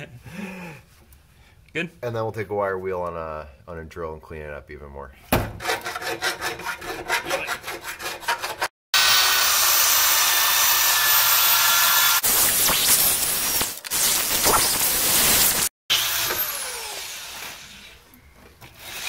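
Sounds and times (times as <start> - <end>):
file rasping in metal bore: 5.6 - 8.7
power drill spinning wire wheel: 9.0 - 19.0.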